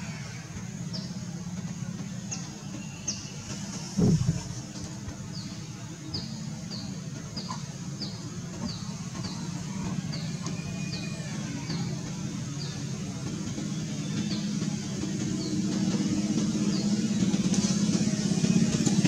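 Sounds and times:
low rumble: 3.8 - 5.0.

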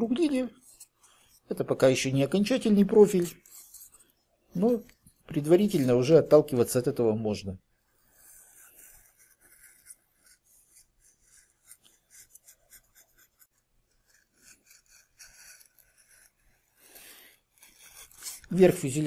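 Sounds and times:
knife scraping foam: 2.4 - 6.4, 7.9 - 19.0.

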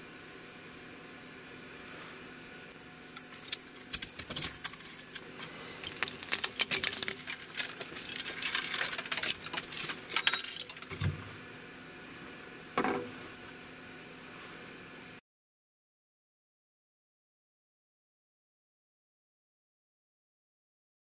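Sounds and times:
cooling fans running: 0.0 - 15.2
plastic pieces clicking and rattling: 3.2 - 11.2
jingling clatter: 5.8 - 11.0.

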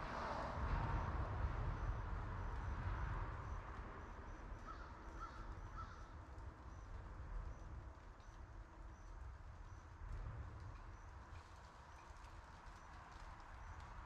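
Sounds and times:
passing car tyre noise: 0.0 - 4.8
crow cawing: 4.7 - 6.0.

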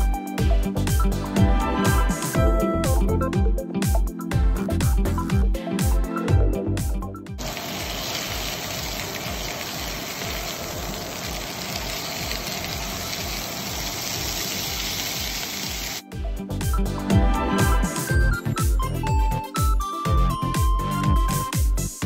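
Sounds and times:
background music with steady beat: 0.0 - 7.4, 14.8 - 22.0
chicken sizzling in hot oil: 7.4 - 16.0.

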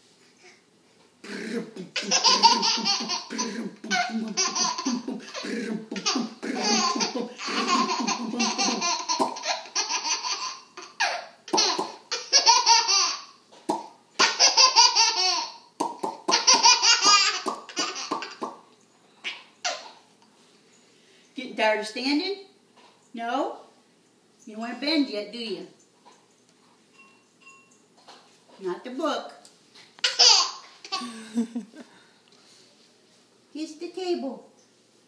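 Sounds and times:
baby laughing: 1.6 - 13.4, 14.2 - 18.6, 19.2 - 20.0, 30.0 - 31.2.

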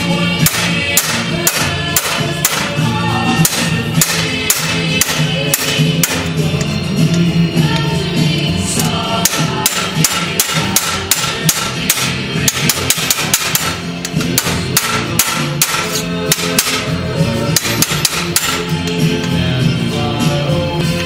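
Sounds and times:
hammer striking sheet metal: 0.4 - 6.4, 8.8 - 19.0.

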